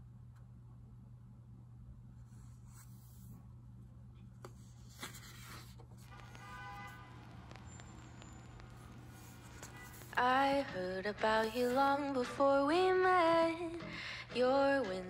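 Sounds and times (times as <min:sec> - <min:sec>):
low steady hum: 0:00.0 - 0:15.0
book pages turning: 0:04.4 - 0:12.0.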